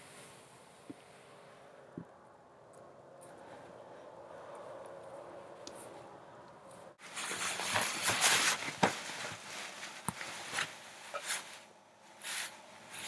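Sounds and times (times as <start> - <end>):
rustling of clothing and dry grass: 7.0 - 13.0.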